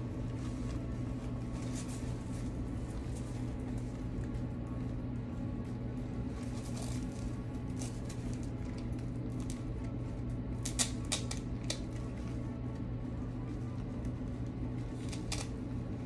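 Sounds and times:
steady low hum: 0.0s - 16.0s
artificial flowers rustling: 0.2s - 3.8s, 6.2s - 8.6s.

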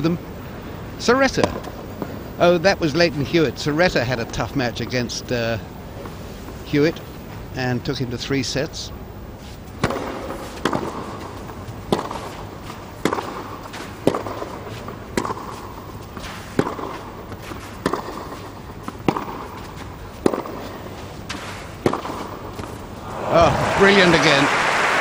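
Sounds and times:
low crowd hum: 0.0s - 25.0s
tennis racket hitting ball: 9.8s - 22.8s.

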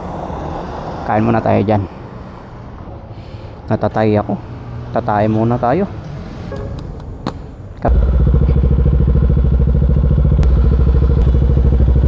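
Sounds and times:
motorcycle engine running: 7.8s - 12.0s.

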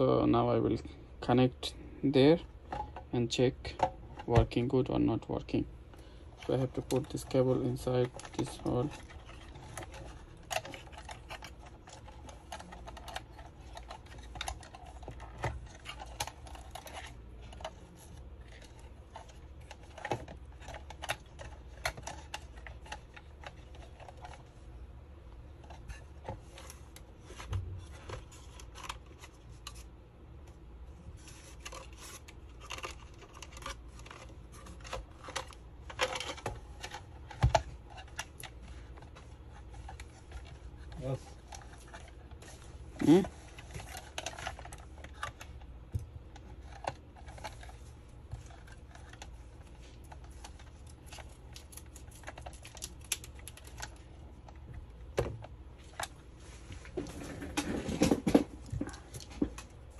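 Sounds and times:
hands handling plastic casing: 25.4s - 59.9s.

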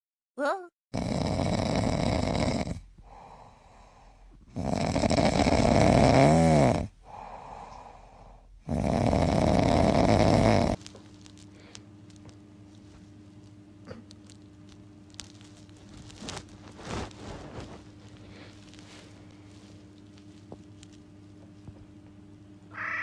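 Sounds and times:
dog snoring: 1.0s - 10.8s.

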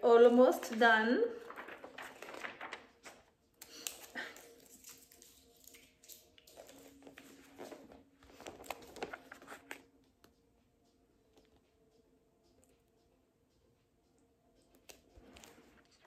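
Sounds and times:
magazine pages rustling: 0.6s - 10.0s.

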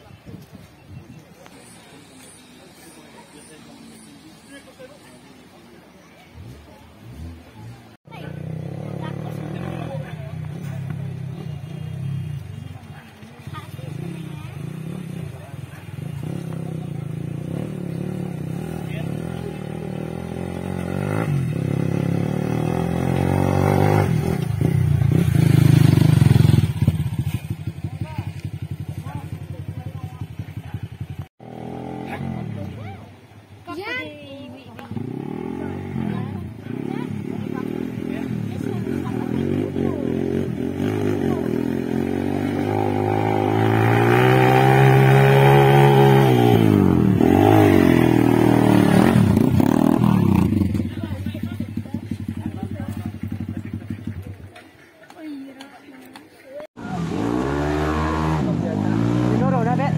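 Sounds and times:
dirt bike engine revving: 7.0s - 12.4s, 13.5s - 32.8s, 34.8s - 54.1s, 56.7s - 59.9s.

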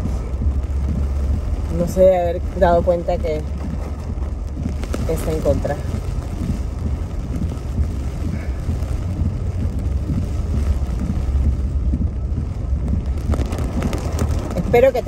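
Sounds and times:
car engine and tyres rumbling: 0.0s - 15.0s.

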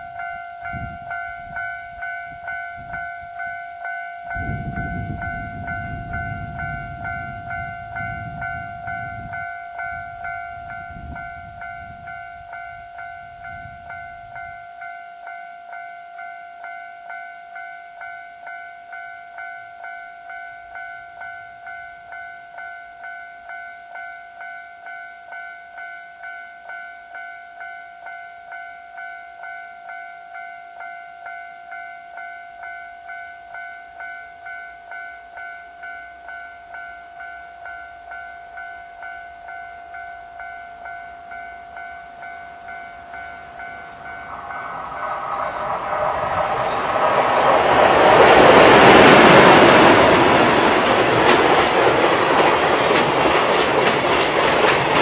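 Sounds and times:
passing freight train: 0.0s - 55.0s
level crossing bell dinging: 28.1s - 53.4s.

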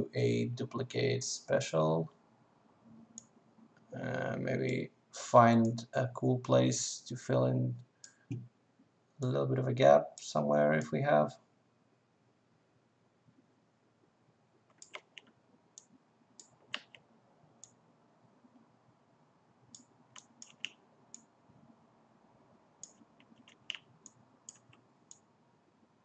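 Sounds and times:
faint room hiss: 0.0s - 26.0s
computer mouse clicking: 14.7s - 17.0s, 19.7s - 21.3s, 22.8s - 25.2s.

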